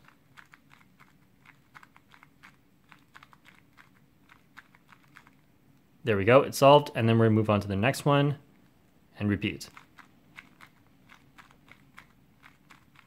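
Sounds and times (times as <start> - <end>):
plastic speed cube clicking: 0.0 - 5.5, 9.7 - 13.0.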